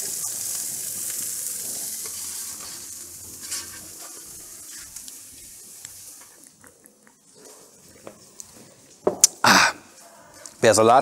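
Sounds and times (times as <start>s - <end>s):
lettuce sizzling on a grill: 0.0s - 6.6s.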